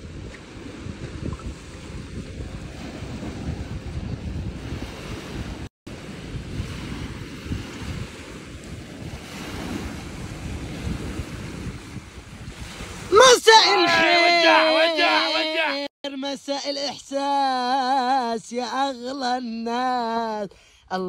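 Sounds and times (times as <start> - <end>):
wind buffeting microphone: 0.0 - 14.0
small waves breaking: 0.0 - 15.8.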